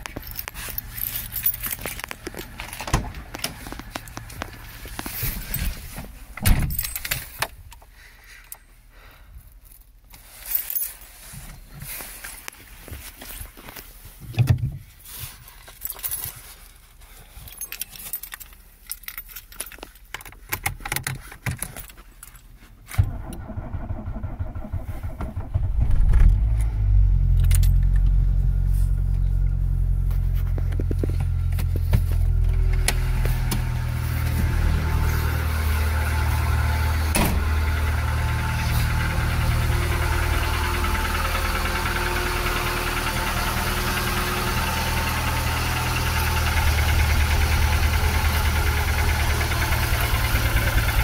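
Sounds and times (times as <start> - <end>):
car engine starting and idling: 0.0 - 8.3, 22.8 - 51.0.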